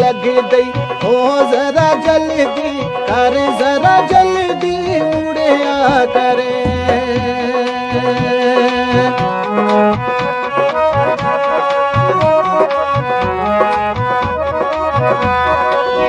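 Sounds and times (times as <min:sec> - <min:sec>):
drum beat: 0:00.0 - 0:16.0
reedy melody instrument: 0:00.0 - 0:16.0.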